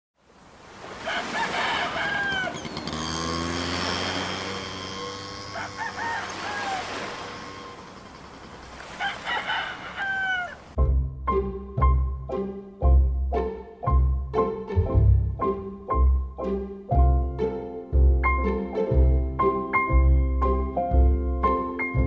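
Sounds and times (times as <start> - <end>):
rooster crowing: 0.9 - 3.0, 5.3 - 8.0, 8.6 - 10.8.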